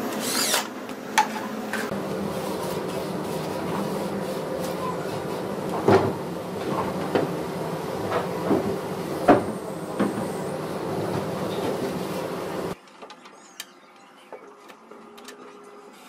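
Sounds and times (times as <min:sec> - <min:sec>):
steady hum: 0:00.0 - 0:12.8.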